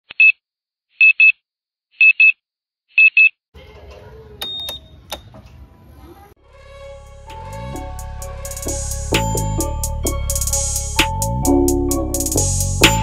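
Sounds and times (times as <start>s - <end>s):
music: 6.4s - 13.0s.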